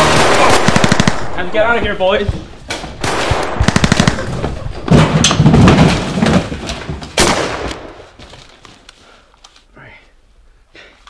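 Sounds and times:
gunfire shots: 0:00.0 - 0:01.6, 0:02.7 - 0:06.0, 0:07.2 - 0:08.1.

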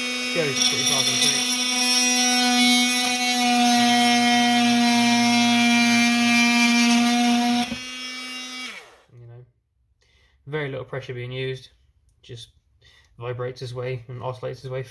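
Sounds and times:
oscillating tool buzzing through wood: 0:00.0 - 0:09.0.

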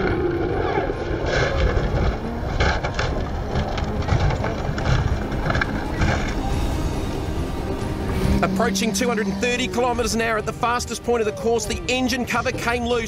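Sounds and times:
wind buffeting microphone: 0:00.0 - 0:10.4
race car crash rumble: 0:00.0 - 0:11.0.

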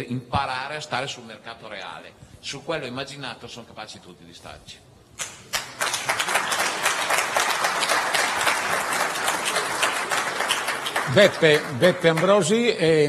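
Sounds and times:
audience applauding: 0:05.2 - 0:12.8.

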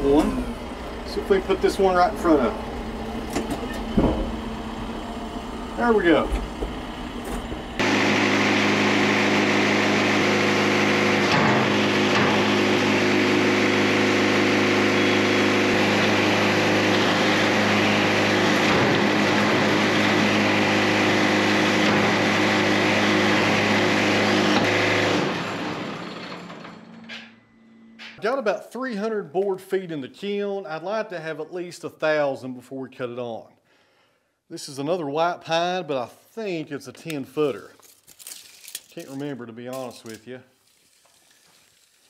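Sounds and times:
sawmill engine running: 0:00.0 - 0:27.4.

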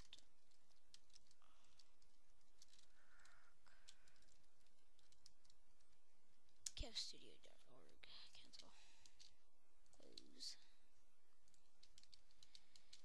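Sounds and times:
computer keyboard keystrokes: 0:00.0 - 0:06.7, 0:11.4 - 0:13.0
low steady hiss: 0:00.0 - 0:13.0.

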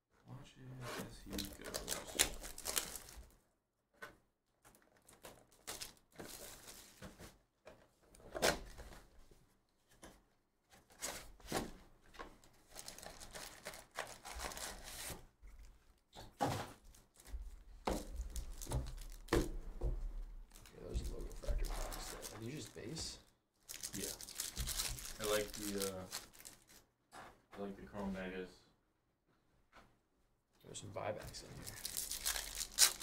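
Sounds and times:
foil packs rustling: 0:01.3 - 0:03.3, 0:05.0 - 0:07.3, 0:12.6 - 0:15.2, 0:18.0 - 0:19.3, 0:20.5 - 0:23.1, 0:23.7 - 0:26.8, 0:31.3 - 0:33.0
plastic wrap crinkling and tearing: 0:01.3 - 0:03.3, 0:04.7 - 0:07.0, 0:12.6 - 0:15.2, 0:18.0 - 0:19.3, 0:20.5 - 0:23.0, 0:23.6 - 0:26.8, 0:31.3 - 0:33.0.

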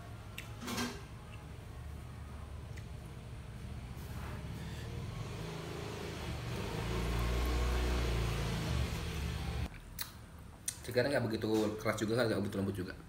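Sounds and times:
vehicle engine running: 0:03.7 - 0:09.7.

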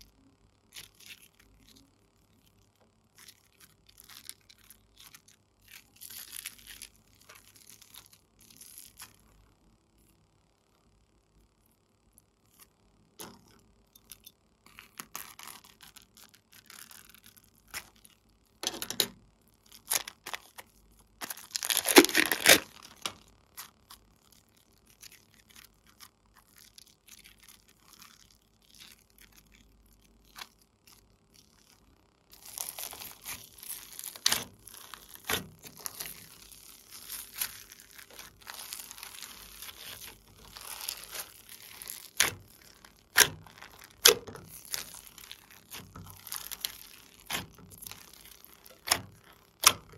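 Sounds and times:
slime crackling and popping on beads: 0:00.7 - 0:09.3, 0:13.2 - 0:18.7, 0:19.6 - 0:49.9
slime squeezed with sticky clicks: 0:32.4 - 0:49.9.

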